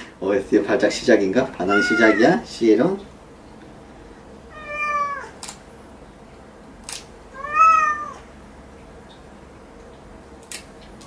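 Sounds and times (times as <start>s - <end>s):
cat meowing: 1.6s - 2.4s, 4.5s - 5.4s, 7.3s - 8.2s
claw clipper clicks: 5.4s - 5.6s, 6.8s - 7.1s, 10.4s - 10.7s.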